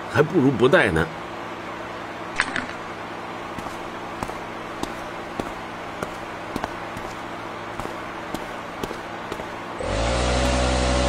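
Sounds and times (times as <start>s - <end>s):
low workshop hum: 0.0s - 11.0s
footsteps on concrete floor: 3.5s - 11.0s.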